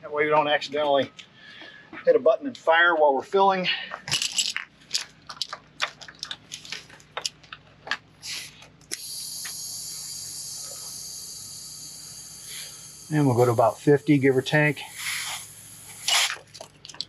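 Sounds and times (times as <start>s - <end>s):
inflator clicks and rattles: 4.0s - 8.0s
compressed air hissing: 8.2s - 16.5s.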